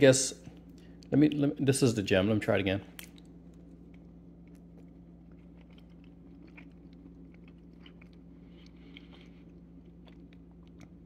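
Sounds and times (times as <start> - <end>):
steady low hum: 0.0 - 11.0
wet chewing clicks and smacks: 3.0 - 11.0.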